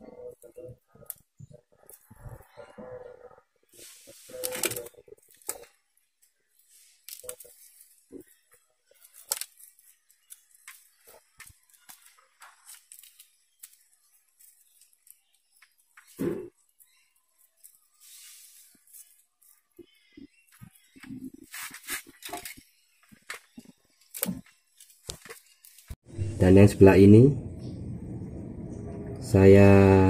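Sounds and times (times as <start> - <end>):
plastic tape crinkling: 4.2 - 18.1, 20.5 - 26.0.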